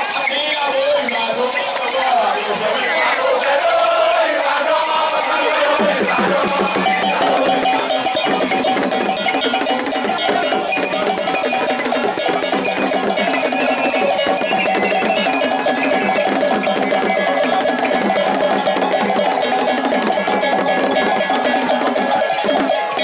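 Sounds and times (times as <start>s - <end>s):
large crowd voices: 0.0s - 23.0s
metal bells struck rhythmically: 0.0s - 23.0s.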